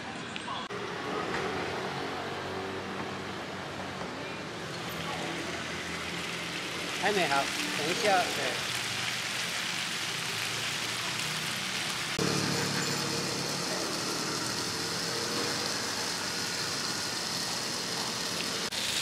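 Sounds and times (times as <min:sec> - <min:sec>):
buns sizzling in a pan: 0:04.5 - 0:19.0.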